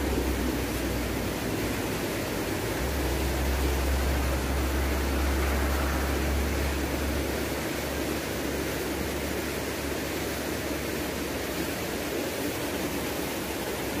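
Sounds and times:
river water rushing over weir: 0.0 - 14.0
low rumble: 2.5 - 8.3.

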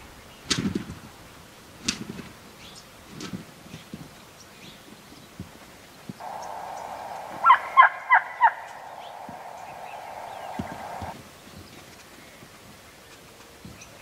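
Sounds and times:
steady background hiss: 4.2 - 14.0
wild turkey gobbling: 6.2 - 11.1.

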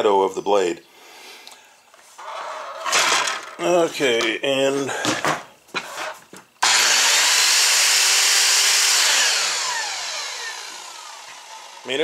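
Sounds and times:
miter saw motor running: 6.6 - 12.0
saw blade whine coasting down: 6.6 - 12.0.

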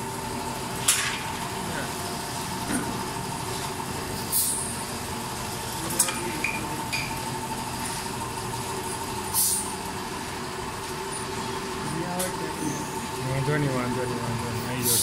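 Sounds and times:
short hisses: 9.4 - 9.7.

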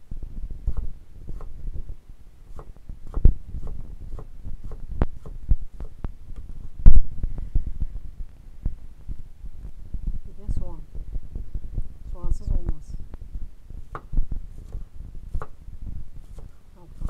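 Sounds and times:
knife chopping on wooden board: 2.5 - 6.0, 15.4 - 15.6, 16.3 - 16.5.

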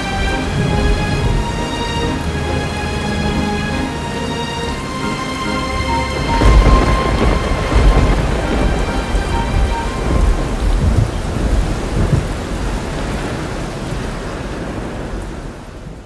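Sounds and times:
heavy rain: 0.0 - 16.0
thunder rumbling: 0.0 - 16.0.

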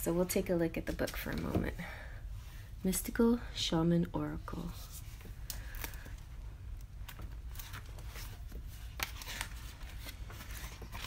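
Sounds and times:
paper pages rustling: 7.1 - 11.0.

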